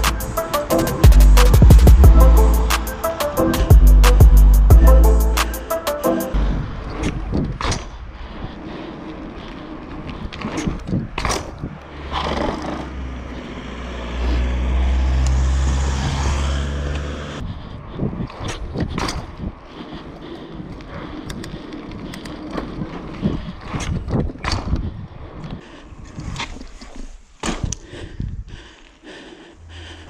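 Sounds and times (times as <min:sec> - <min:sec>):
heavy low rumble: 0:00.0 - 0:05.6, 0:06.3 - 0:08.2
wind buffeting: 0:06.3 - 0:26.5
tyre noise on asphalt: 0:06.4 - 0:30.0
bike parts clicking and rattling: 0:20.7 - 0:24.9.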